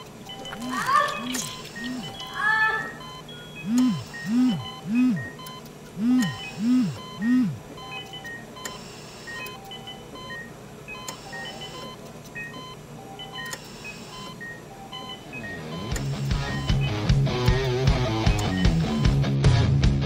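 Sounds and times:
short electronic beeps: 0.0 - 19.2.

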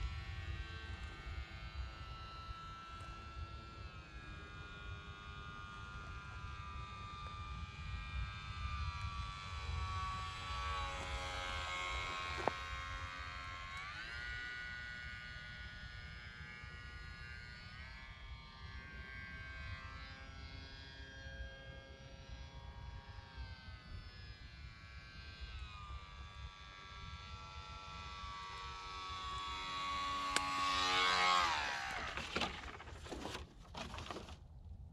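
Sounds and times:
wind rumble on microphone: 0.0 - 19.6
model plane motor whine: 0.0 - 34.5.

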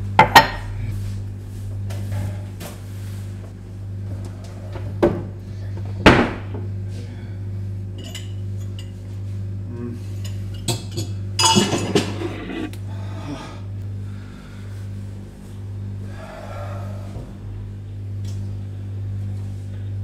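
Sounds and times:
steady low hum: 0.0 - 20.0
kitchenware clinking and clattering: 10.3 - 12.6.

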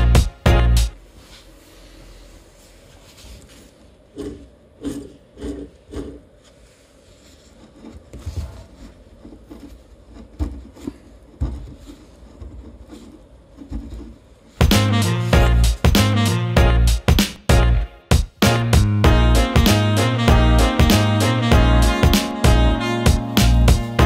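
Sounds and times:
light scraping: 1.2 - 14.5.

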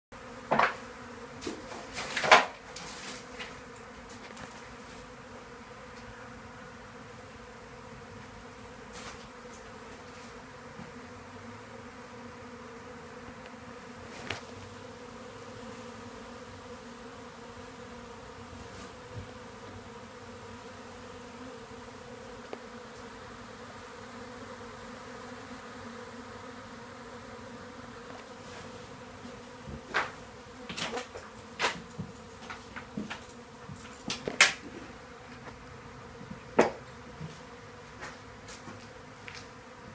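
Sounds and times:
bees buzzing: 0.2 - 39.9
sharp taps and knocks: 36.6 - 37.4.

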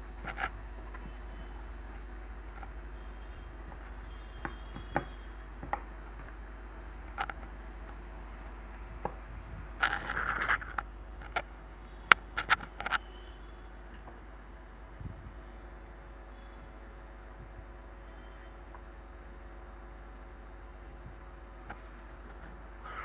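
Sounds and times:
steady low hum: 0.0 - 23.0
scraping rustle: 9.8 - 11.4.

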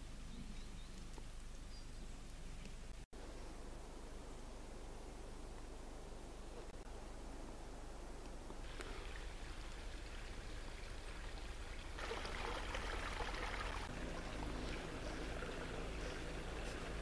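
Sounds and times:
stream trickling: 8.6 - 17.0.

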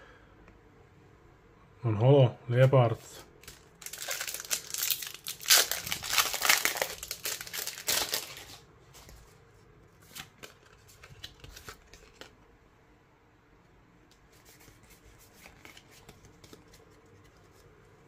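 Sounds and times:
foil wrapper tearing and crinkling: 3.4 - 8.6
cards handled with soft clicks: 14.1 - 17.7.

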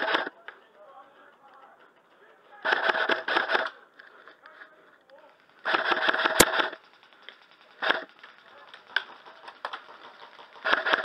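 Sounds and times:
airsoft rifle firing bursts: 2.4 - 3.8, 5.1 - 11.0
sharp crack: 2.5 - 11.0.

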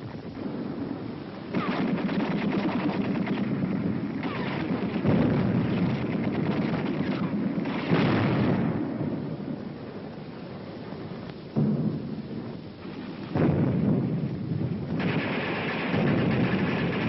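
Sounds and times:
gunfire: 1.5 - 3.6, 4.2 - 8.8, 15.0 - 17.0
artillery shell explosions: 1.5 - 9.3, 11.5 - 17.0.

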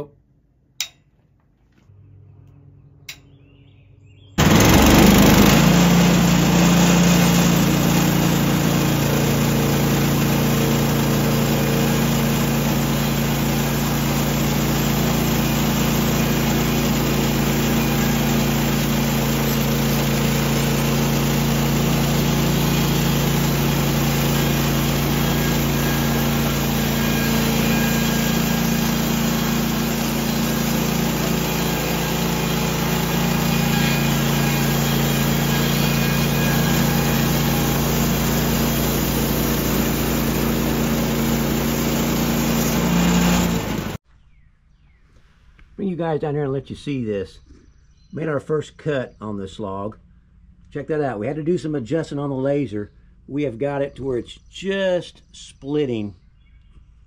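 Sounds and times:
band blade cutting log: 4.4 - 44.0
sawmill gasoline engine running: 4.4 - 44.0.

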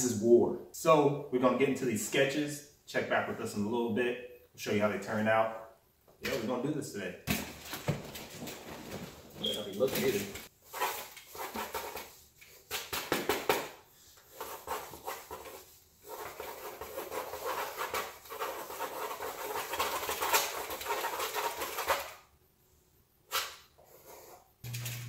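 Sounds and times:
pencils scribbling on paper: 10.1 - 12.2, 14.3 - 22.1.

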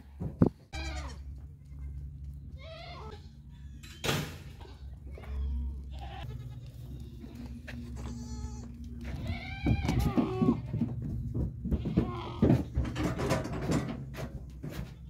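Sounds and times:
steady low rumble: 0.1 - 15.0
goat bleating: 0.7 - 3.8, 4.6 - 11.0, 11.7 - 12.7.

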